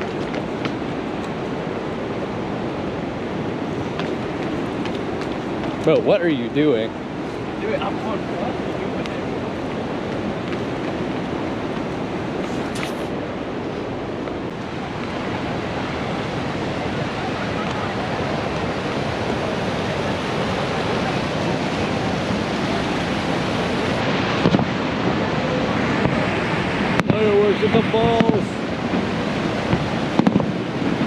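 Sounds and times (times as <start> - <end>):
waterfall roaring: 0.0 - 31.0
firework bang: 24.0 - 25.2, 25.9 - 31.0.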